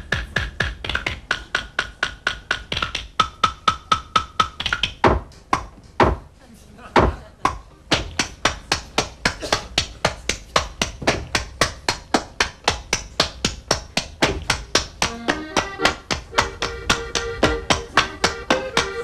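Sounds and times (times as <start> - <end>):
hands slapping and clapping: 0.1 - 6.2, 7.4 - 19.0
held instrumental notes: 14.2 - 19.0.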